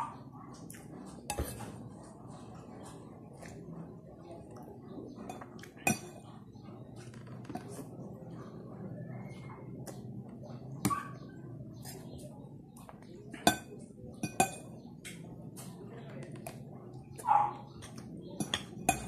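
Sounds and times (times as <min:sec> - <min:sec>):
cutlery clinking and scraping on plate: 0:00.7 - 0:03.6, 0:05.1 - 0:08.0, 0:12.8 - 0:16.6, 0:17.7 - 0:19.0.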